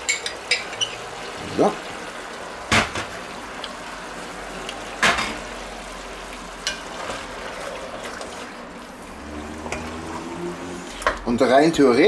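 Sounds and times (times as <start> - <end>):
stew sizzling in a pot: 0.0 - 11.2.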